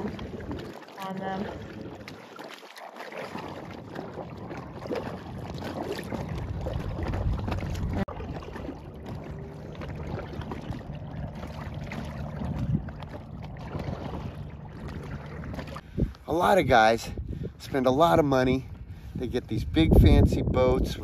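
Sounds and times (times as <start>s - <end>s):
water lapping and splashing: 0.0s - 21.0s
wind noise on microphone: 4.2s - 8.4s, 9.0s - 21.0s.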